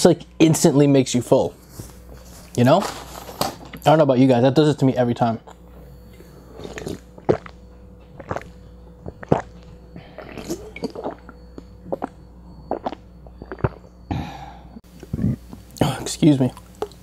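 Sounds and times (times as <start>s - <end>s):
person gulping drink: 5.4s - 7.6s, 8.2s - 15.8s.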